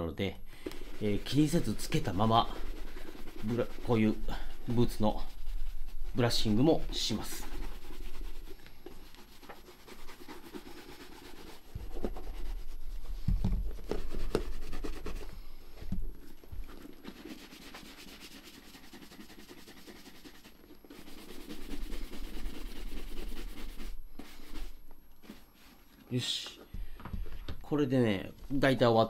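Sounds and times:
shoe brush rubbing on leather: 0:00.6 - 0:15.4, 0:16.2 - 0:25.9.

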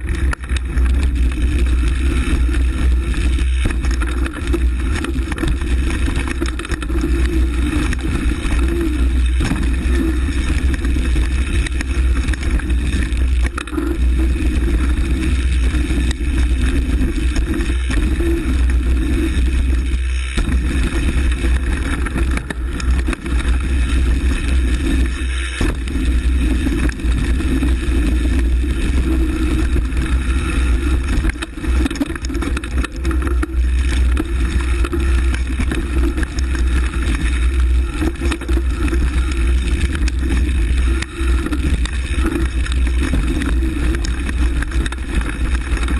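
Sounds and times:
mountain bike rolling and rattling: 0:00.0 - 0:45.9
wind rumble on microphone: 0:00.0 - 0:45.9.

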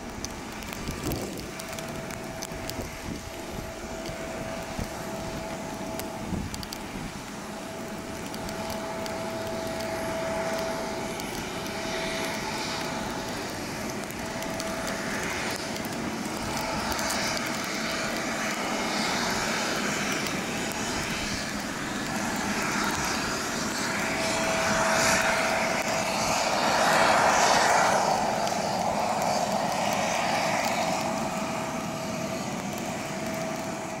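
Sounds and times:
aircraft tug whine: 0:00.0 - 0:34.0.

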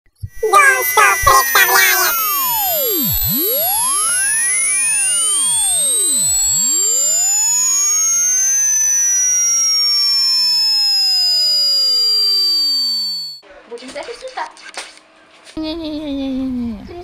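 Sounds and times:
electronic tone sliding down: 0:00.2 - 0:13.4
faint tones sweeping up and down: 0:00.2 - 0:13.4.

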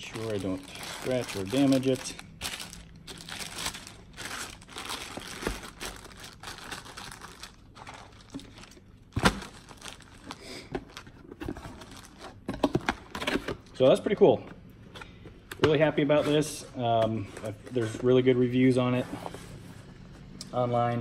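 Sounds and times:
plastic bags crinkling: 0:00.0 - 0:11.1, 0:11.8 - 0:12.4.

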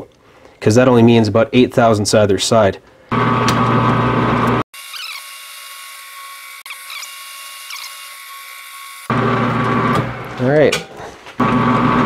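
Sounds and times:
short squeaky chirps: 0:04.8 - 0:05.4, 0:06.7 - 0:08.1.

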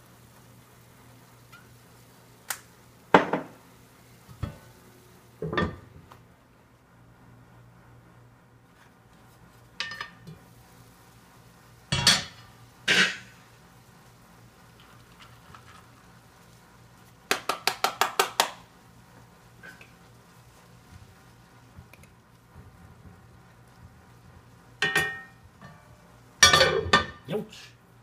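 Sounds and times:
cookware knocking on skillet: 0:03.1 - 0:03.6, 0:24.8 - 0:25.8
taps against pan: 0:17.3 - 0:18.6, 0:24.8 - 0:25.8.

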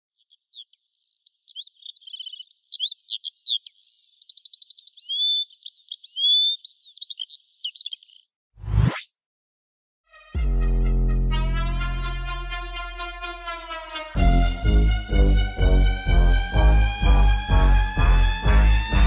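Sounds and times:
songbird singing: 0:00.1 - 0:08.4.

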